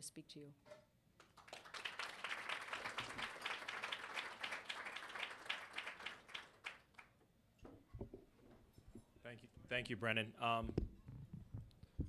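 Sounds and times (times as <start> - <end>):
audience applauding: 1.2 - 7.1.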